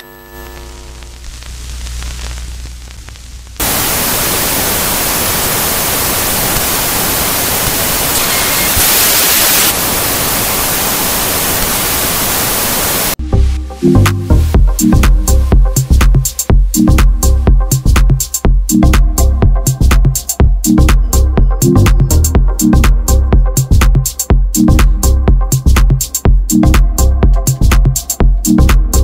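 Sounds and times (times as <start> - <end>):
low electric hum: 0.0 - 3.8
white noise static hiss: 0.0 - 18.4.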